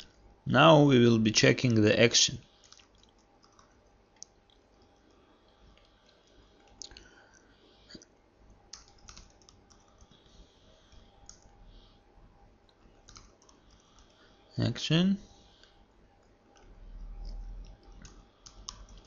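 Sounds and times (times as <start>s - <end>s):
keyboard keystrokes and clicks: 2.6s - 5.2s, 8.7s - 10.3s, 10.9s - 11.6s, 12.7s - 14.2s, 16.2s - 19.0s.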